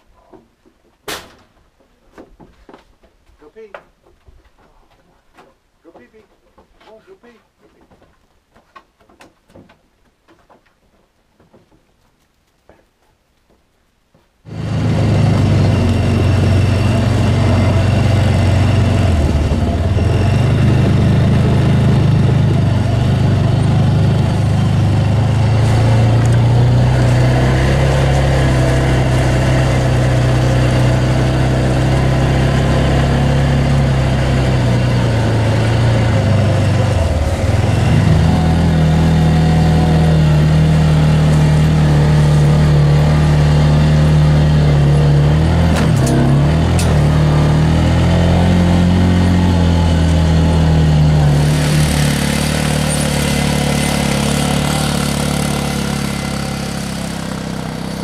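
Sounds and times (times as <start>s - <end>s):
utility vehicle engine driving: 14.5s - 58.0s.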